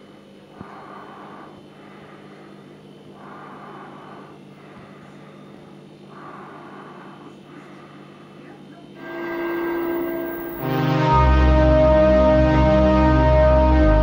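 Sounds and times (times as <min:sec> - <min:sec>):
slow heavy breathing: 0:00.4 - 0:10.7
low hum: 0:09.0 - 0:14.0.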